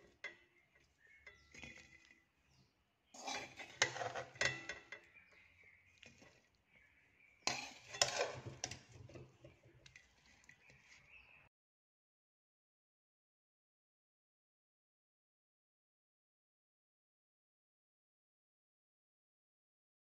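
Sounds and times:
spatula scraping metal pan: 0:00.0 - 0:06.6, 0:07.2 - 0:11.4.

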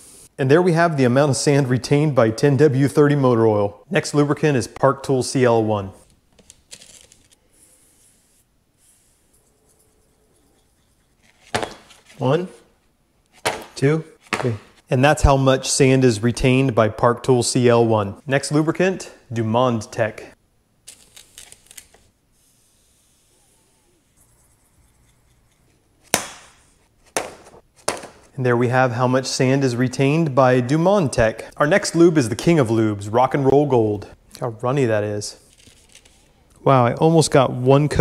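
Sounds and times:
foam brush rubbing on paper: 0:07.5 - 0:11.4, 0:22.3 - 0:25.7.

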